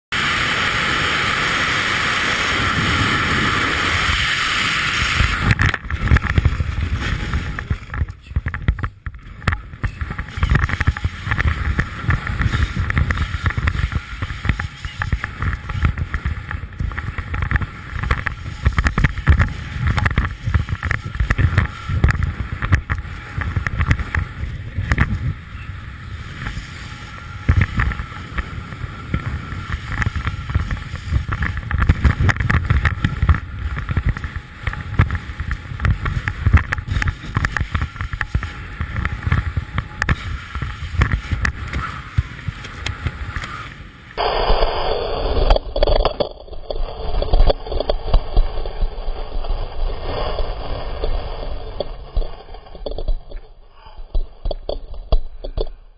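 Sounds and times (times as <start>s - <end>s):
wind buffeting microphone: 0.2s - 44.3s.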